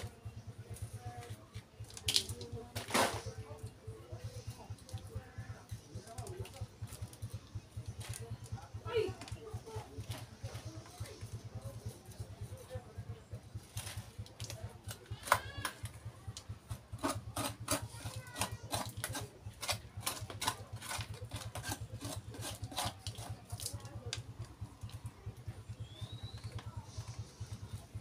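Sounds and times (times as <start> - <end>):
low steady hum: 0.0 - 28.0
metal tool scraping soil: 16.7 - 23.7.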